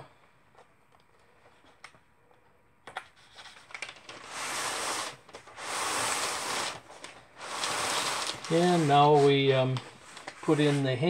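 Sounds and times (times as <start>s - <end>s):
hand rubbing paper: 3.5s - 11.0s.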